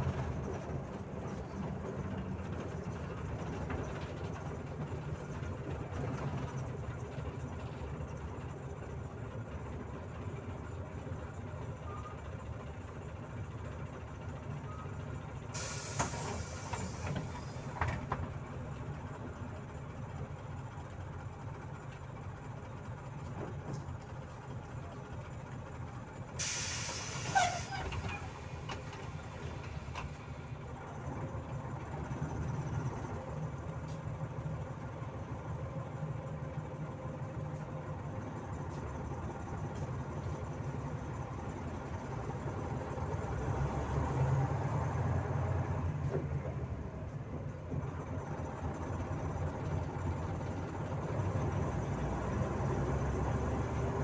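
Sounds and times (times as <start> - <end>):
bus engine idling: 0.0 - 54.0
pneumatic air hisses: 15.6 - 17.8, 26.4 - 28.6.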